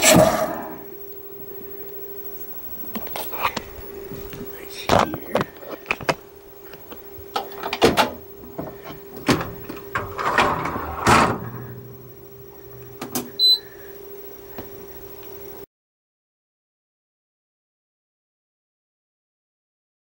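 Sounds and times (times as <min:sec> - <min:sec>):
dishwasher door opening: 0:07.4 - 0:11.9.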